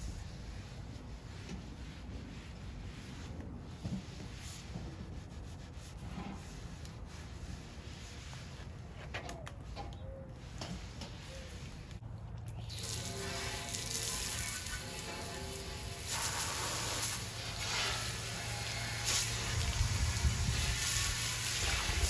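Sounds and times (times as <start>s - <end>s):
water spray hissing on metal: 12.6s - 22.0s.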